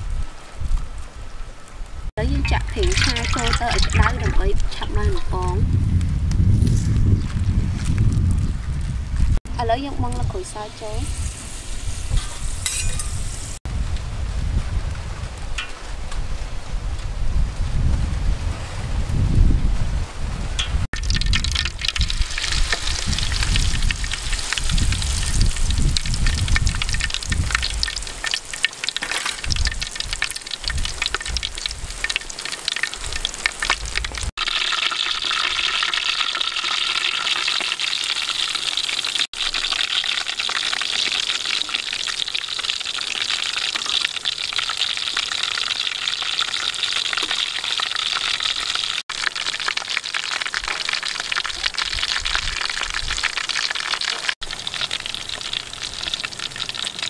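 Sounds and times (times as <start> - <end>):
batter deep-frying in hot oil: 2.2 - 18.0, 20.5 - 57.0
oil crackling sharply: 21.0 - 57.0.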